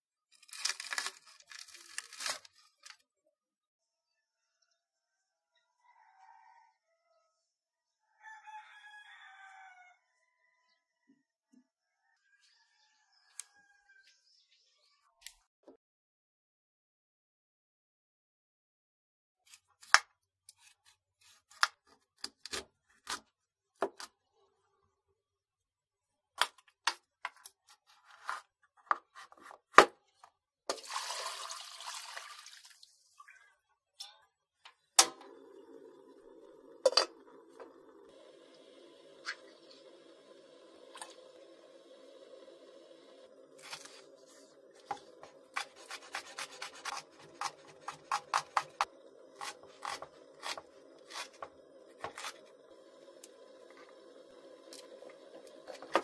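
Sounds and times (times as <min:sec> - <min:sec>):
knife cutting on wooden board: 0:44.8 - 0:52.4.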